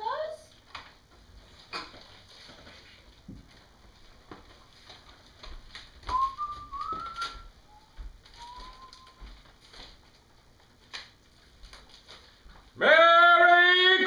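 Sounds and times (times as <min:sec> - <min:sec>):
paper crinkling: 0:00.6 - 0:12.8
whistled notes: 0:06.1 - 0:09.3.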